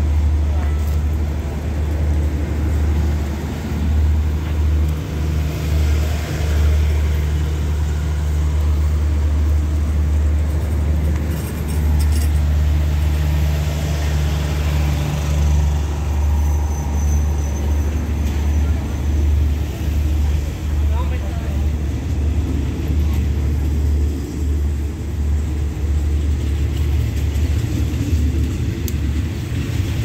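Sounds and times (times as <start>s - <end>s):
diesel train engines idling: 0.0s - 30.0s.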